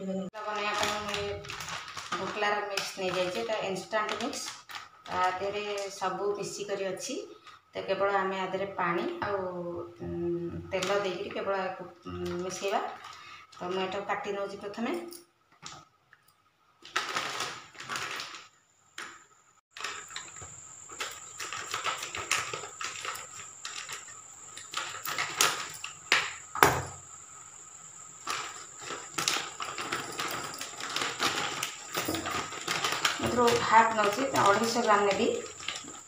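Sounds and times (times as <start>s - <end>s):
plastic packet crackling: 0.4s - 5.4s, 16.8s - 26.6s, 28.0s - 36.0s.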